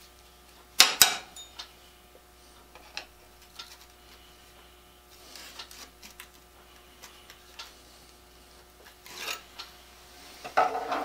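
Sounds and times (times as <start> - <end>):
faint steady hum: 0.0 - 11.0
metal scrape: 9.0 - 9.5, 10.3 - 11.0.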